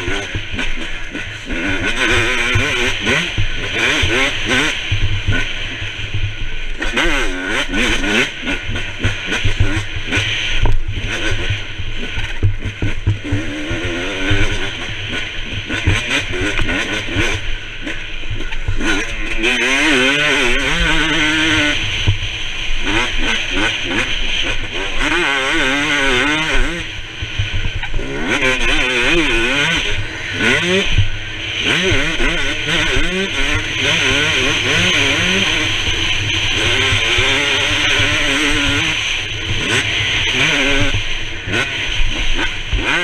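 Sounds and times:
dirt bike engine revving: 0.0s - 43.0s
wind rumble and knocks: 27.2s - 28.0s.

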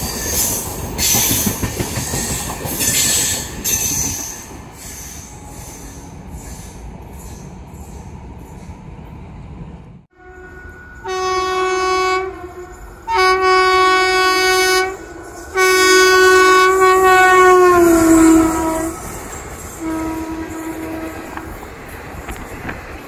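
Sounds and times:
passing coaches rattling: 0.0s - 9.7s, 10.3s - 23.0s
train horn blasts: 10.1s - 21.5s.

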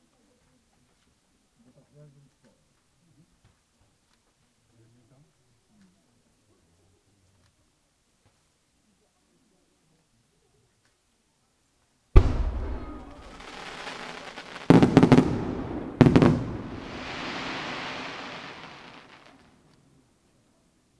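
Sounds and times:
firework hiss: 12.2s - 19.6s
fireworks bangs: 12.2s - 19.7s.

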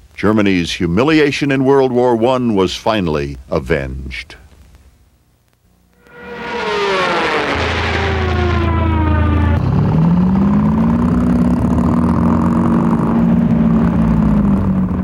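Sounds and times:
diving plane engine whine: 6.0s - 15.0s
rushing noise: 6.0s - 15.0s
tank engines running: 6.2s - 15.0s.

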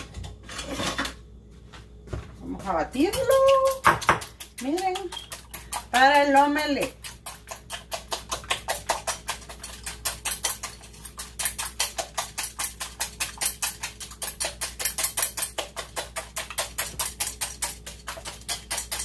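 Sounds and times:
metal whisk beating eggs in bowl: 2.6s - 19.0s.

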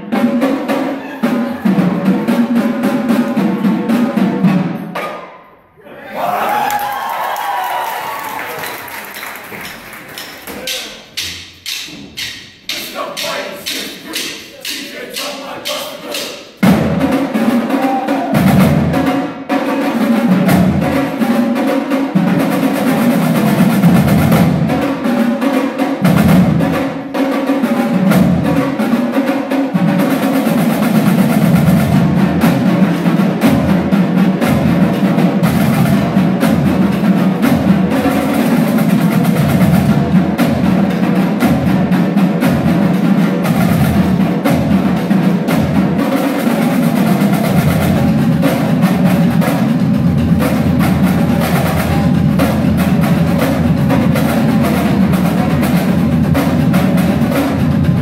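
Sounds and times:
snare drums playing: 8.1s - 58.0s
drumstick count-off clicks: 9.6s - 16.6s
deep bass drum beats: 10.6s - 19.1s, 47.0s - 58.0s.

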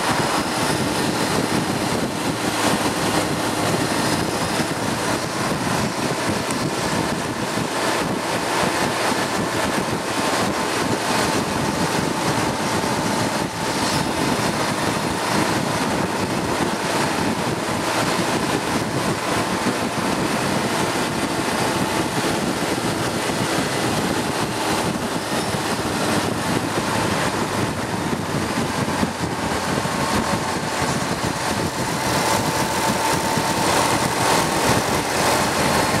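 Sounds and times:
vehicle engine running: 0.0s - 36.0s
wind and road noise: 0.0s - 36.0s.

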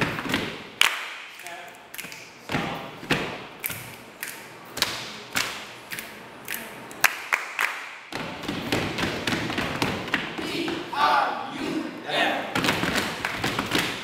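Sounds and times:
hands clapping: 0.8s - 2.3s, 3.6s - 8.1s, 12.6s - 14.0s.

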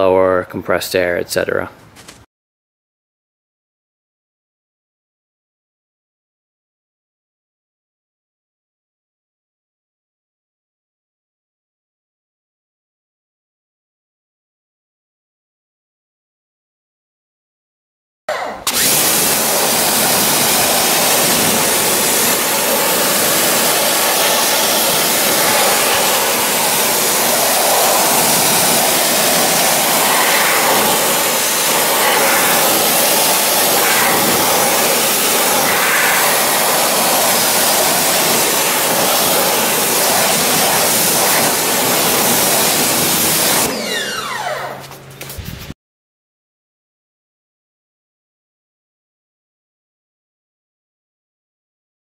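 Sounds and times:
pressure washer motor: 18.3s - 45.4s
pressure washer spraying: 18.6s - 45.4s.

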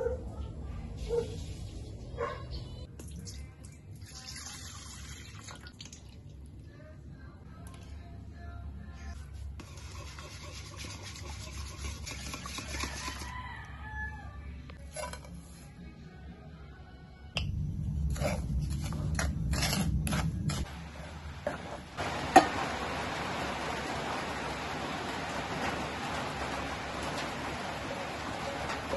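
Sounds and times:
whisk beating in metal bowl: 9.6s - 13.3s
low hum: 14.6s - 28.7s.

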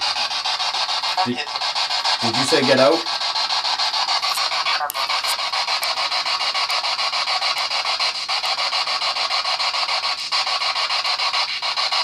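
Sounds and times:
pulsing radio static hiss: 0.0s - 12.0s.

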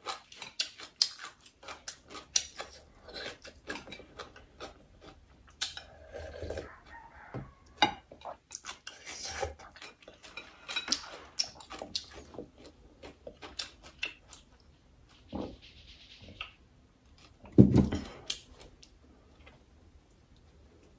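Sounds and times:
wet chewing and lip smacks: 10.9s - 14.7s.

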